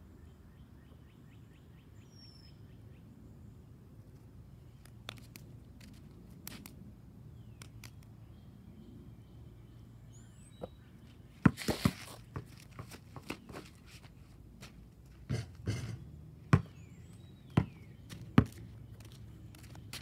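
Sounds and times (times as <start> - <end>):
basketball bouncing on concrete: 11.4 - 13.7, 15.1 - 20.0.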